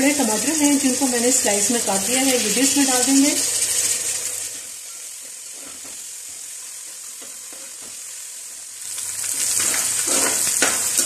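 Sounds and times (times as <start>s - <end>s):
tomatoes sizzling in hot oil: 0.0s - 11.0s
metal spoon scraping pot: 9.5s - 11.0s.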